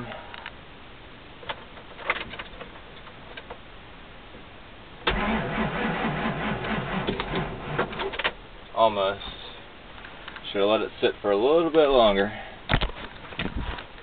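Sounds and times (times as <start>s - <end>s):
starter cranking engine: 5.1s - 8.0s.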